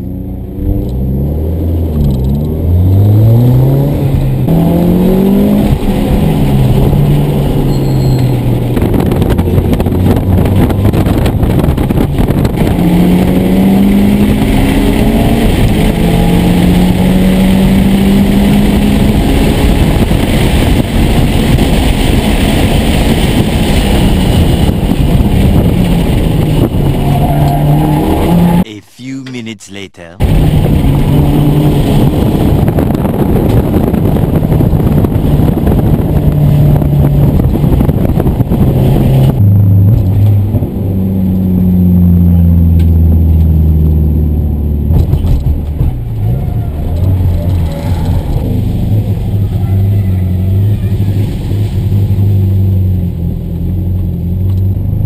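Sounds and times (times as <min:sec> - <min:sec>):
road and drivetrain rumble: 0:00.0 - 0:28.6, 0:30.2 - 0:55.0
car engine accelerating: 0:08.3 - 0:28.6.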